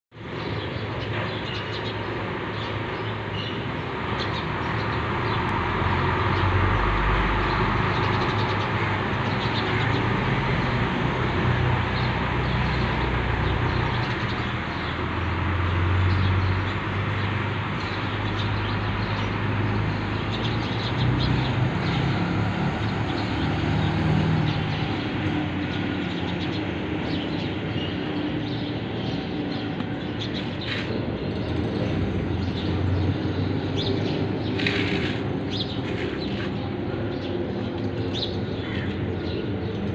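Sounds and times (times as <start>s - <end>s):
small birds chirping: 0.2s - 5.6s, 22.9s - 39.9s.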